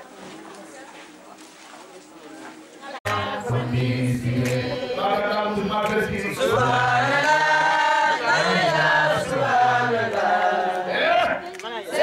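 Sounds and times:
voices chanting: 3.0 - 12.0.

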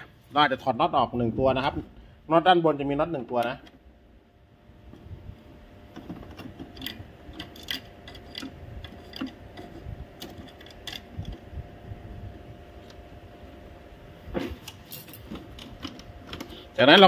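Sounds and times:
screwdriver clicks and scrapes: 6.0 - 11.4.

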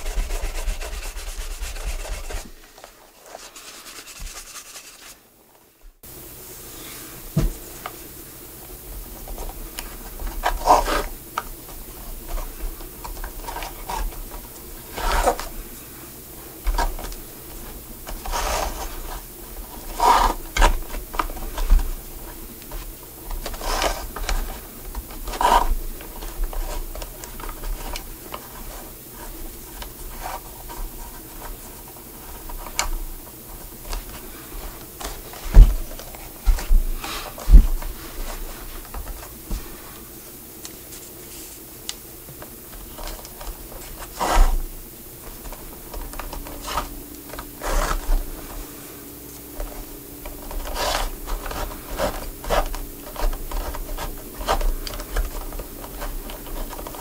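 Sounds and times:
hand rubbing leather shoe: 0.0 - 5.2, 9.2 - 15.8, 49.4 - 57.0.

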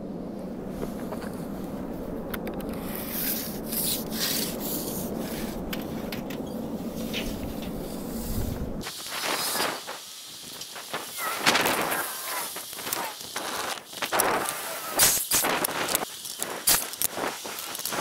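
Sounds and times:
steady low rumble: 0.0 - 14.8
tape measure clicks: 11.5 - 18.0.

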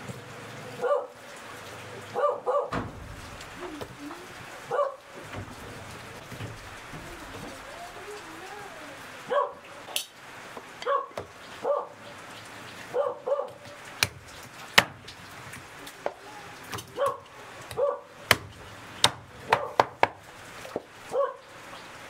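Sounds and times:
dog barking: 0.8 - 1.2, 2.1 - 2.8, 4.6 - 5.2, 9.2 - 9.7, 10.8 - 12.0, 12.9 - 13.8, 16.9 - 18.2, 19.5 - 19.9, 21.1 - 21.5
cleaver knocking chopping block: 18.3 - 20.8.

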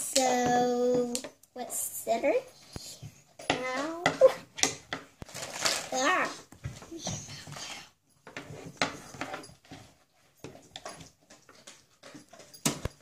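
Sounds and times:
plastic packaging crinkling: 5.2 - 6.3.

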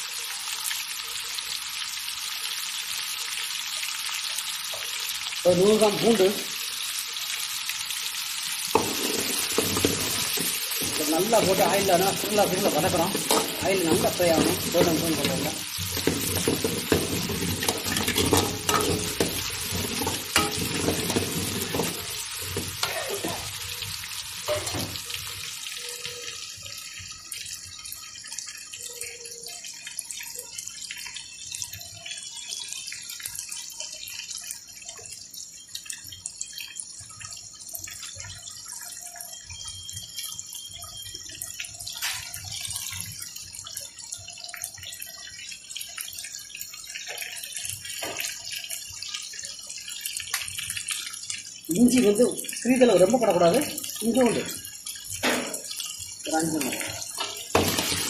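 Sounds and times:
food sizzling in hot oil: 0.0 - 58.0
oil popping and crackling: 0.0 - 58.0
ladle scraping and knocking pan: 8.8 - 11.6, 12.9 - 23.0, 24.5 - 25.0, 57.2 - 58.0.

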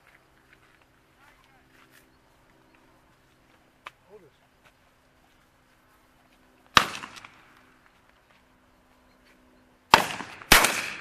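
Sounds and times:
shotgun shots: 6.7 - 7.5, 9.9 - 11.0.

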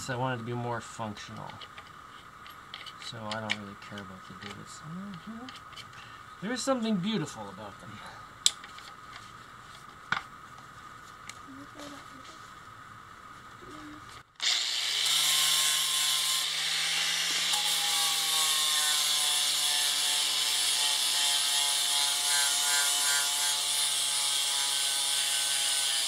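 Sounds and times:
angle grinder grinding steel: 14.4 - 26.0.

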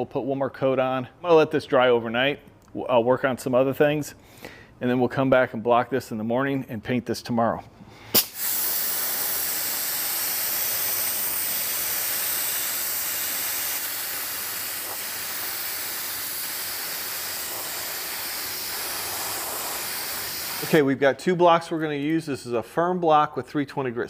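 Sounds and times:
spray gun hissing: 8.1 - 20.8.

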